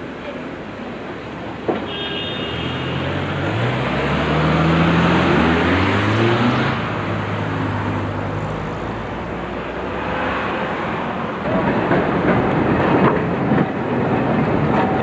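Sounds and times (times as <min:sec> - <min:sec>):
cars driving past: 0:02.6 - 0:13.2.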